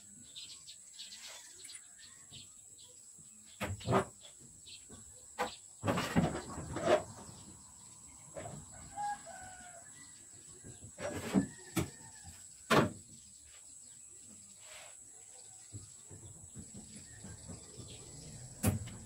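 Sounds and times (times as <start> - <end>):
distant rooster crowing: 8.4 - 12.8.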